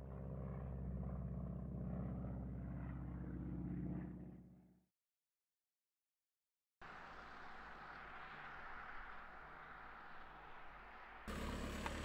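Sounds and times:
aircraft engine drone: 0:06.9 - 0:12.0.

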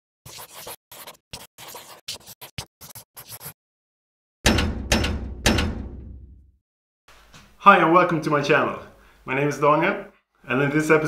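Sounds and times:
pen scratching on paper: 0:00.2 - 0:03.6.

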